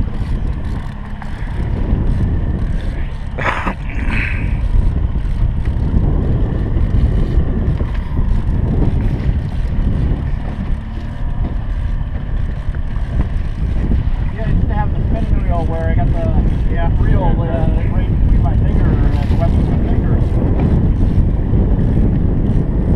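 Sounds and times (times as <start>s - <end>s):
boat motor running: 0.0s - 22.9s
wind buffeting microphone: 0.0s - 22.9s.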